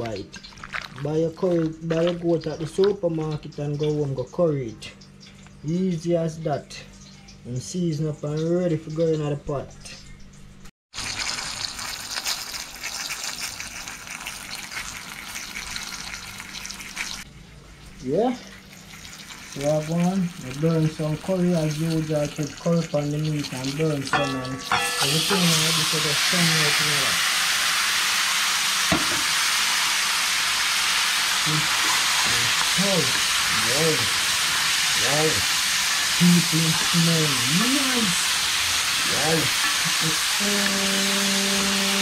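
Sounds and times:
curry powder sizzling in hot oil: 10.9 - 42.0.

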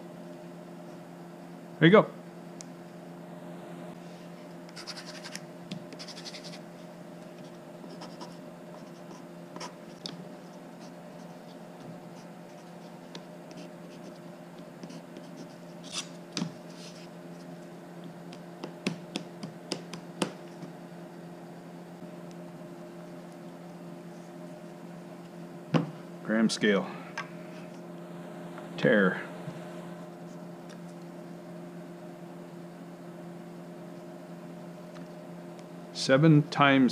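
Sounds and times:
faint steady hum: 0.0 - 36.9
pencil scratching on wood: 4.8 - 6.6, 7.4 - 9.8, 14.8 - 16.1.

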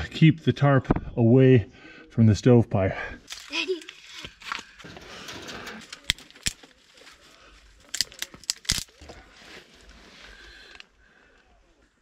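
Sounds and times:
twigs rustling and crinkling: 3.2 - 10.9
twigs snapping: 5.8 - 9.3.

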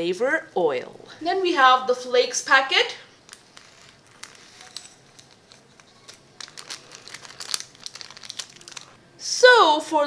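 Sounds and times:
dried flakes crackling: 3.2 - 9.0
plastic sachet crinkling and tearing: 3.2 - 9.0.

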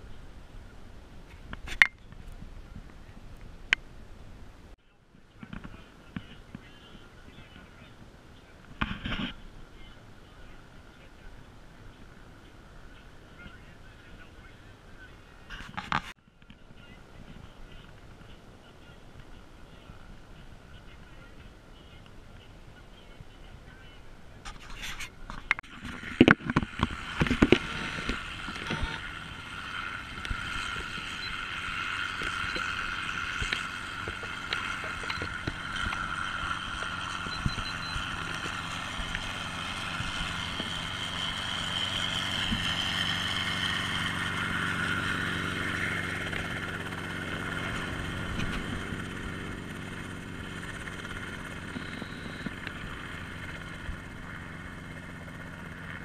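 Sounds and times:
helicopter engine drone: 16.4 - 56.0.

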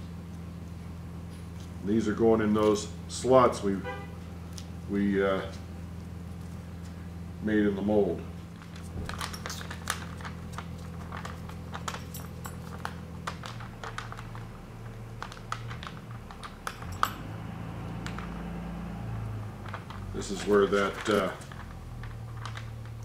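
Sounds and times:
plastic film crinkling: 8.5 - 16.7, 19.4 - 23.0.

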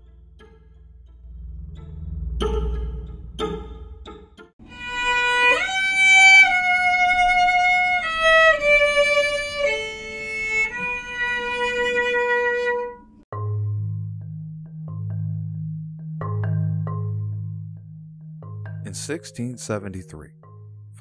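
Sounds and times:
slow violin melody: 0.0 - 13.1.

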